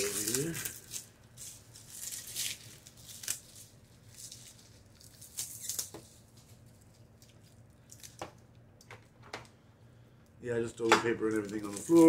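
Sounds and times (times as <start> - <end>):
plastic wrap crinkling: 0.0 - 8.3, 11.2 - 12.0.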